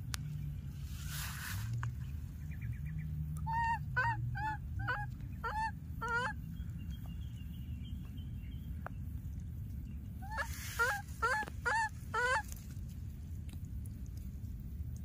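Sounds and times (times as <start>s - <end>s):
baby monkey high-pitched calls: 3.5s - 6.4s, 10.2s - 12.5s.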